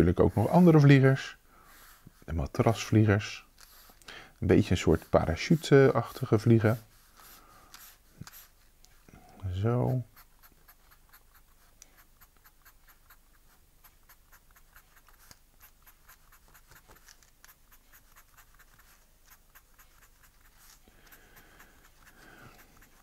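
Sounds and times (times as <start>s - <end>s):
pen scratching on paper: 4.5s - 8.6s, 9.7s - 23.0s.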